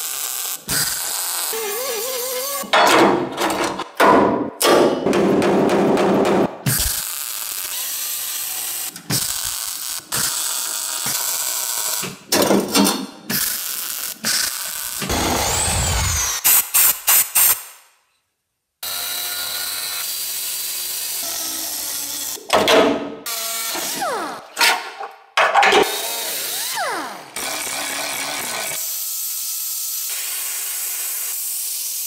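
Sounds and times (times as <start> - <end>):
cut-off wheel grinding steel: 15.0 - 16.4
power tool hissing: 15.0 - 16.9.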